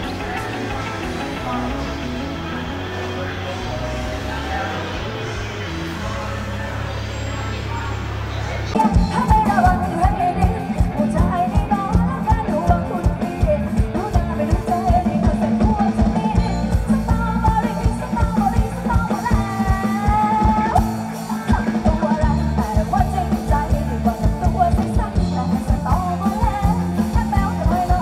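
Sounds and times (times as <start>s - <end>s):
drums with steady beat: 0.0s - 2.5s, 8.8s - 28.0s
electric guitars: 0.0s - 28.0s
person singing: 8.8s - 28.0s.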